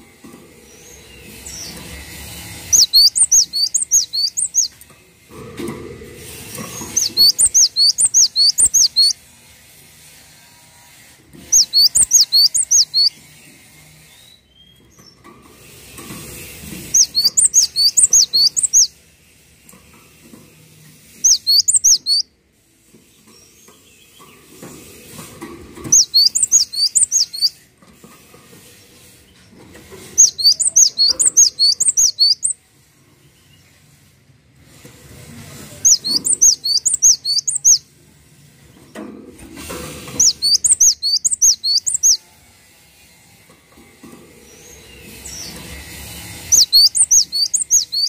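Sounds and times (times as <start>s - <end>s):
bird singing rapid high notes: 2.6s - 4.8s, 6.9s - 9.2s, 11.5s - 13.2s, 16.8s - 18.9s, 21.2s - 22.3s, 25.9s - 27.6s, 30.2s - 32.6s, 35.8s - 37.8s, 40.1s - 42.2s, 46.4s - 48.0s.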